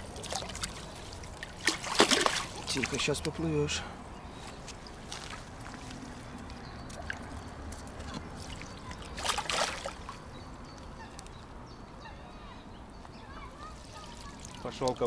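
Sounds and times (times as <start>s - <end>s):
fish splashing: 0.0s - 3.1s, 8.4s - 10.2s
water sloshing: 0.0s - 3.4s, 6.9s - 10.3s, 13.6s - 15.0s.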